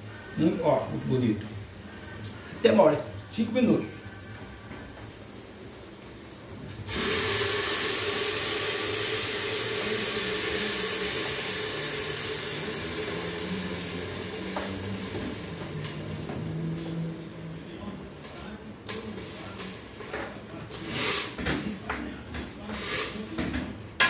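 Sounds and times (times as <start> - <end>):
food sizzling in hot oil: 0.0 - 16.7, 20.7 - 21.6, 22.6 - 23.5.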